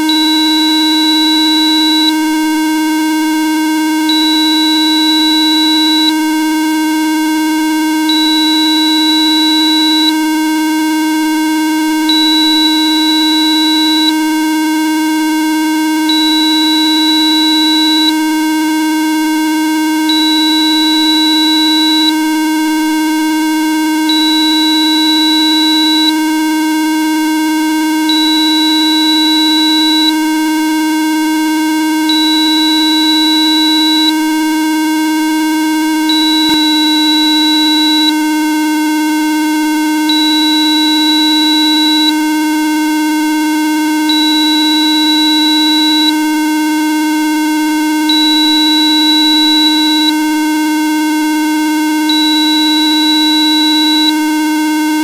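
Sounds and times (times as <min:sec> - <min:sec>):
steady electronic tone: 0:36.1 - 0:38.2, 0:40.1 - 0:42.2, 0:44.1 - 0:46.2, 0:48.1 - 0:50.2, 0:52.1 - 0:54.2
thin high beep: 0:36.2 - 0:38.1, 0:40.1 - 0:42.1, 0:44.1 - 0:46.2, 0:48.1 - 0:50.2, 0:52.1 - 0:54.2.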